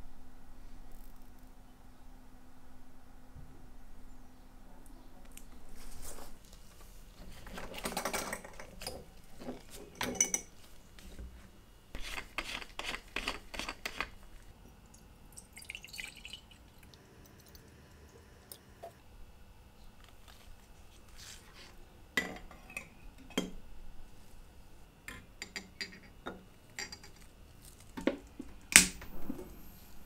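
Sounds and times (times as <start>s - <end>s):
liquid trickling into jar: 14.7s - 17.7s.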